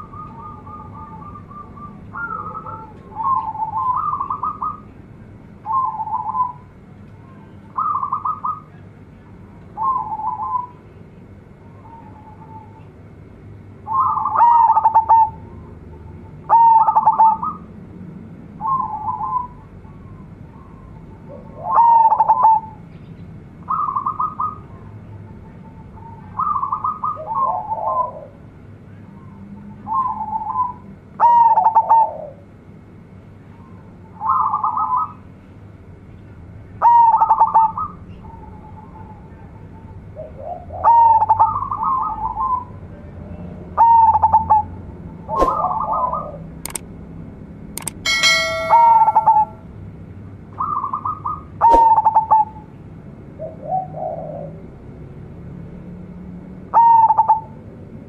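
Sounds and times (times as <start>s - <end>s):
dove cooing: 0.0s - 4.8s, 7.8s - 8.7s, 13.9s - 15.4s, 16.5s - 17.6s, 20.6s - 22.7s, 26.4s - 28.4s, 40.2s - 42.6s, 45.3s - 46.4s, 53.4s - 54.6s.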